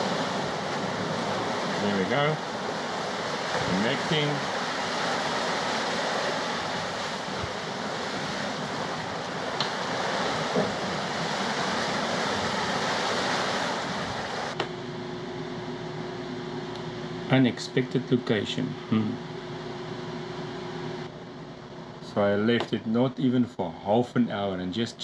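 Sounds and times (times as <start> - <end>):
wind and sea rushing: 0.0 - 16.2
low room hum: 0.0 - 25.0.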